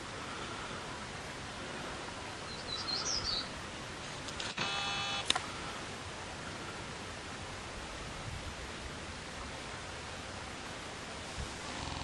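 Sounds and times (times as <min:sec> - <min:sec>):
steady outdoor hiss: 0:00.0 - 0:12.0
camera beep and shutter click: 0:04.4 - 0:05.4.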